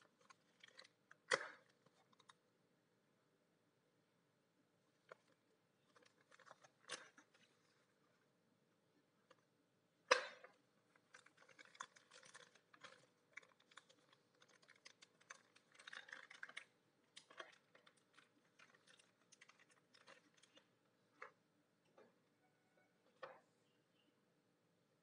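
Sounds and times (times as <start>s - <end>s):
plastic bags crinkling: 0.1s - 2.4s, 5.9s - 7.7s, 11.0s - 21.3s.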